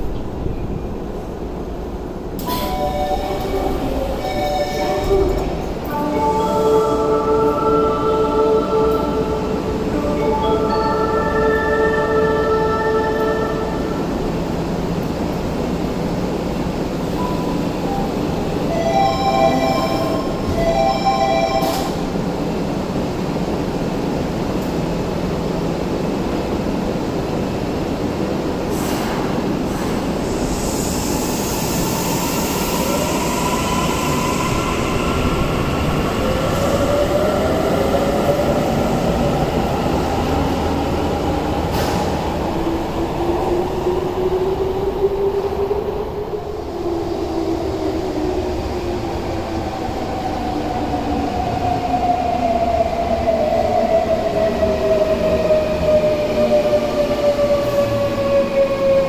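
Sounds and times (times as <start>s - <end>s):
train doors shutting: 0.0s - 22.6s, 28.1s - 46.3s.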